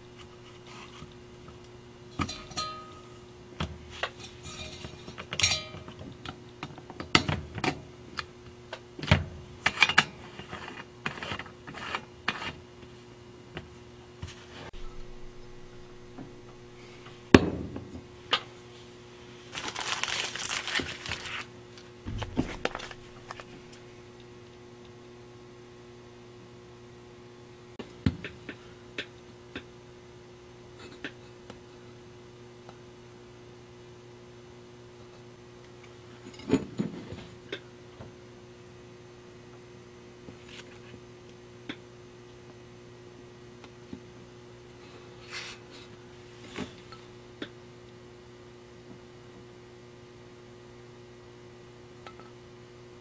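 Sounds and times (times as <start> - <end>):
steady low hum: 0.0 - 53.0
rustling: 19.5 - 21.5.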